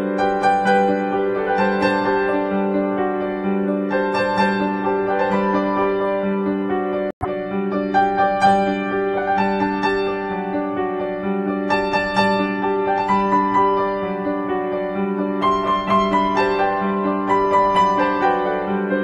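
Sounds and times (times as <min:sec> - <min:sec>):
instrumental music with keyboard: 0:00.0 - 0:19.0.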